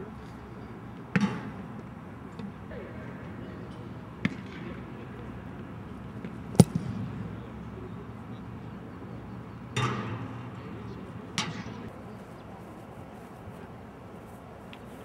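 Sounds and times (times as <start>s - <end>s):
soft noisy sound: 0.0s - 15.0s
foot kicking a football: 6.5s - 7.0s.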